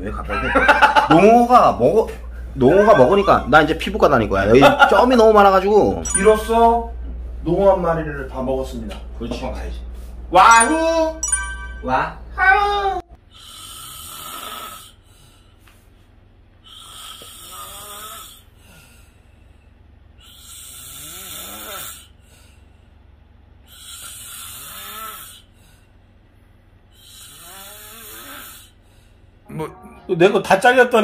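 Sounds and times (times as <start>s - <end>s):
man snoring: 13.3s - 15.0s, 16.6s - 18.5s, 20.3s - 22.2s, 23.7s - 25.5s, 27.0s - 28.8s.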